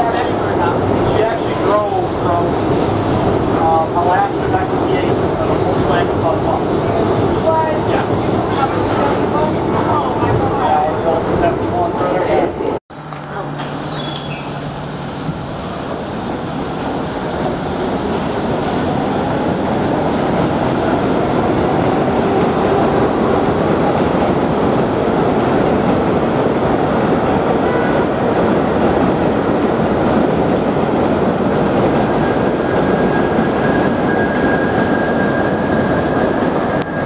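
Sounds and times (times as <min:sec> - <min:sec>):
subway train rumbling on rails: 0:00.0 - 0:37.0
faint high wheel squeal: 0:13.6 - 0:16.2.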